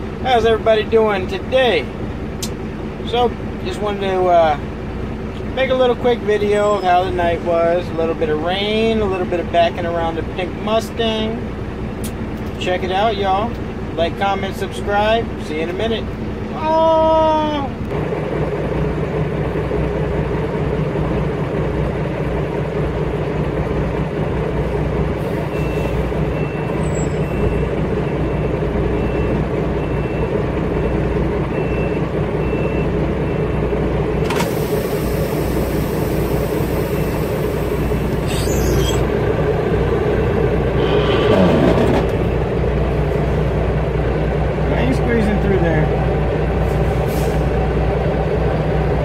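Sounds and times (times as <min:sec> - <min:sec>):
diesel engine idling: 0:00.0 - 0:49.0
loud air hiss: 0:34.4 - 0:39.0.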